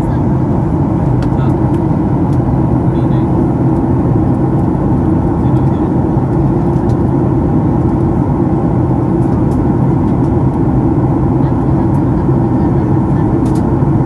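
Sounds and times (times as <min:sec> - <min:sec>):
airliner cabin rumble: 0:00.0 - 0:14.0.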